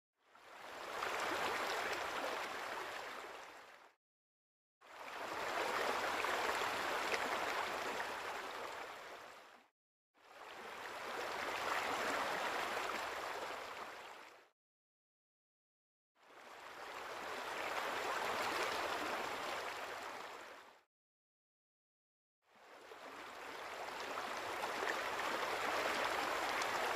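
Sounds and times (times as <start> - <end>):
rushing water-like noise: 23.9 - 26.9.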